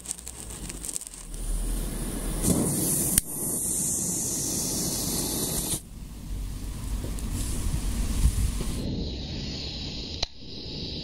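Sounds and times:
lighter being lit: 0:00.0 - 0:05.9, 0:09.9 - 0:10.7
fuse hissing spray of sparks: 0:00.0 - 0:11.0
sharp pop: 0:02.4 - 0:05.8.

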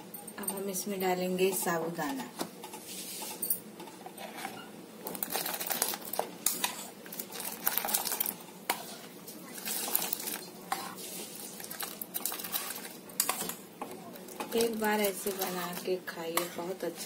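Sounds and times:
spoon scraping steel bowl: 0:10.7 - 0:13.5.

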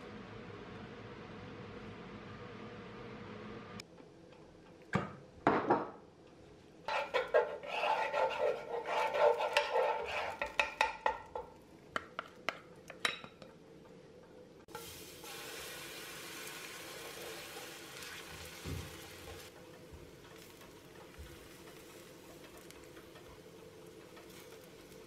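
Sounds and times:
wooden spatula scraping skillet: 0:06.9 - 0:11.5, 0:24.2 - 0:25.0
hot oil sizzling: 0:14.7 - 0:25.0.

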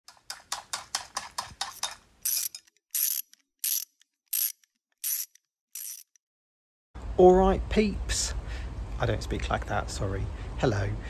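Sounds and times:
sharp mechanical clicks: 0:01.6 - 0:06.2.

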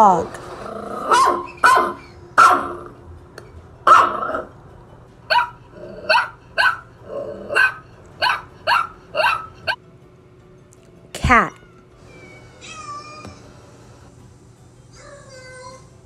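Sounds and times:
dog barking: 0:01.0 - 0:02.9, 0:03.9 - 0:04.5, 0:05.3 - 0:06.9, 0:07.5 - 0:09.8.

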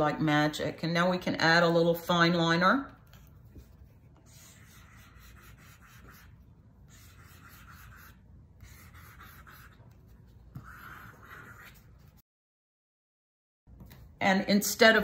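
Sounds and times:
pen scratching on film: 0:03.1 - 0:12.2.

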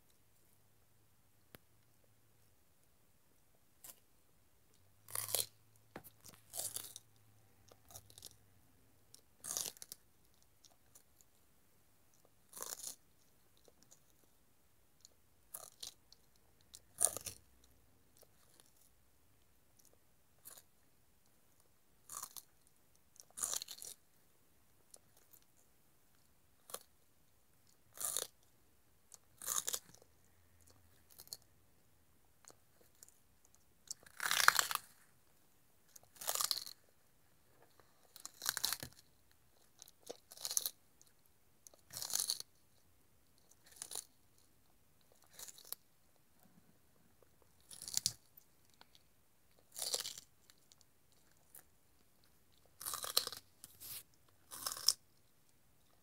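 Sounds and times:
tortoise crunching celery: 0:05.0 - 0:08.5, 0:09.1 - 0:11.3, 0:12.1 - 0:14.3, 0:15.5 - 0:17.6, 0:22.0 - 0:24.0, 0:27.6 - 0:28.4, 0:29.1 - 0:31.5, 0:32.4 - 0:35.1, 0:35.9 - 0:36.9, 0:37.5 - 0:42.6, 0:43.4 - 0:44.4, 0:45.0 - 0:45.8, 0:47.4 - 0:55.3.

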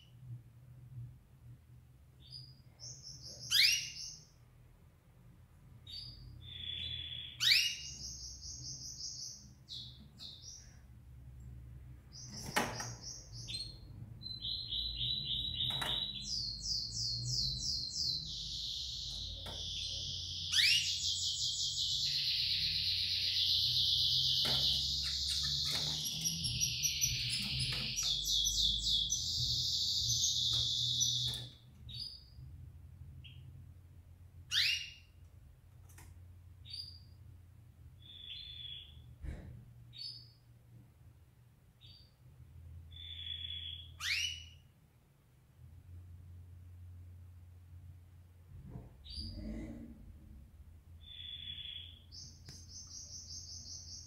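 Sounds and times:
canary singing trills: 0:02.2 - 0:04.3, 0:05.8 - 0:10.8, 0:12.1 - 0:32.4, 0:34.5 - 0:35.2, 0:38.0 - 0:39.1, 0:42.9 - 0:44.7, 0:51.0 - 0:54.0.

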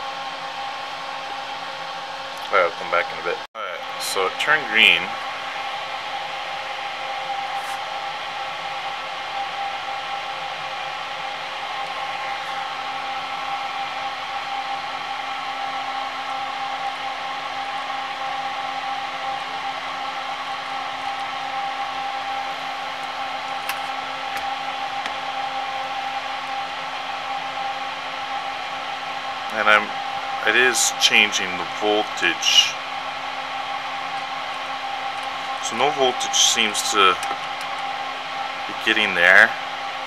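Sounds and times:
fog machine fan whirring: 0:00.0 - 0:40.0.

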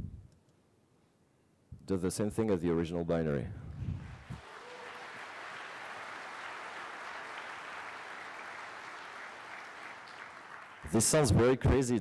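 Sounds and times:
audience applauding: 0:04.0 - 0:11.4.

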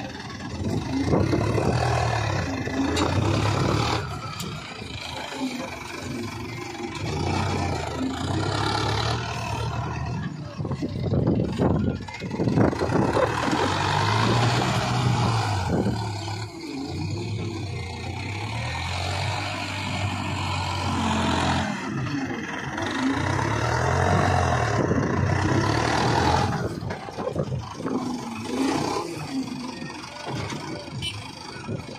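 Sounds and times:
tractor diesel engine: 0:00.0 - 0:31.9.

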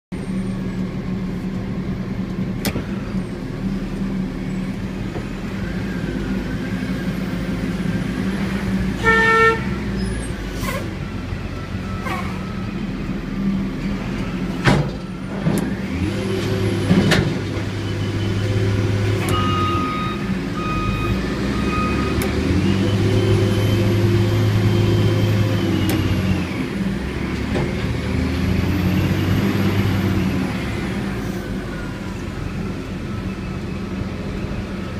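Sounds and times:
diesel engine running: 0:00.1 - 0:34.9
short beep: 0:19.2 - 0:23.3.

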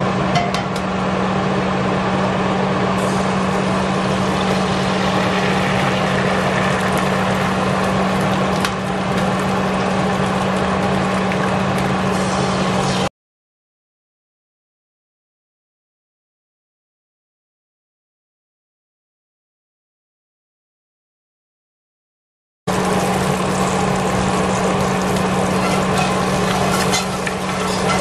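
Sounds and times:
eggs sizzling in a skillet: 0:03.1 - 0:12.8, 0:22.7 - 0:28.0.

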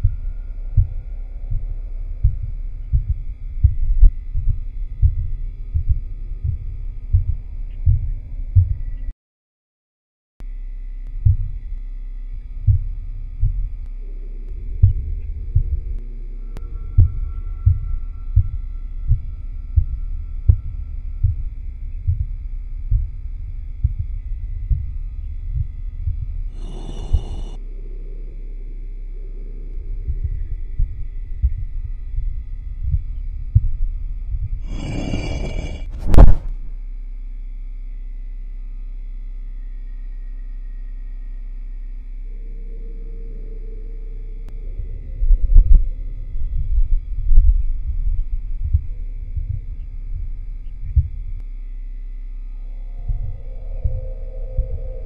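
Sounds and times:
dull low thumps: 0:00.0 - 0:09.1, 0:11.1 - 0:11.8, 0:12.4 - 0:27.6, 0:29.8 - 0:36.8, 0:44.5 - 0:55.0
static hiss with high tones: 0:26.6 - 0:27.6
low thuds: 0:32.2 - 0:36.8.

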